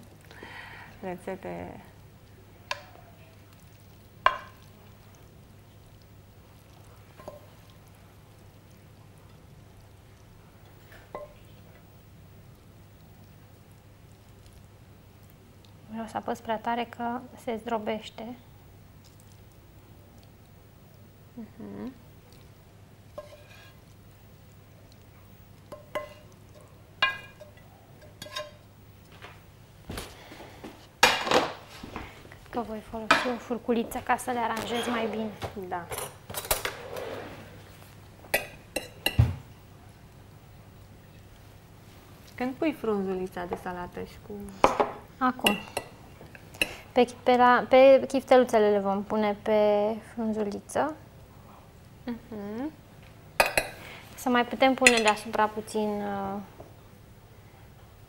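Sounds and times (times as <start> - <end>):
faint steady hum: 0.0 - 58.0
spatula scraping frying pan: 23.2 - 23.9, 27.0 - 28.6, 34.6 - 37.7.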